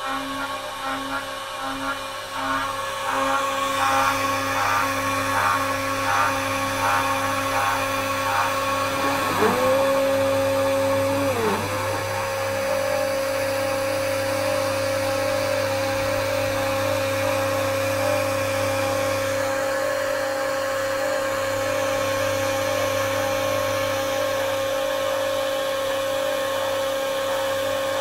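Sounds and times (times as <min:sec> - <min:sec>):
bit cutting fiberboard: 0:00.0 - 0:20.0
router spindle whining: 0:00.0 - 0:25.3.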